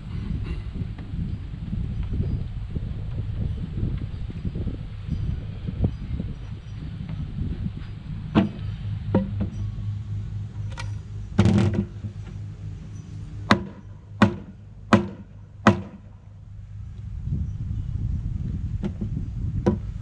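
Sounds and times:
hammer striking wooden board: 8.3s - 9.5s, 13.5s - 16.1s
clatter: 10.5s - 12.4s.

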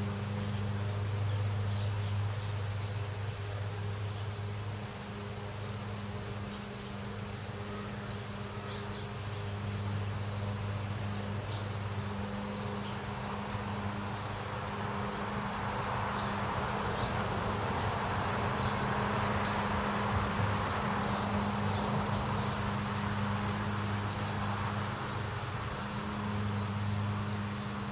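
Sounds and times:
insects chirping: 0.0s - 27.9s
car passing: 12.5s - 27.9s.

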